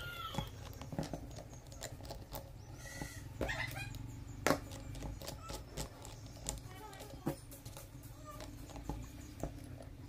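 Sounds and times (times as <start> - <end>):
animal call: 0.0 - 6.8.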